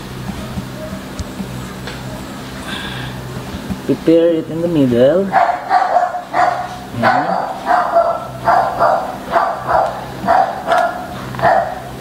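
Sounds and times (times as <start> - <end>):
dog barking: 5.3 - 12.0.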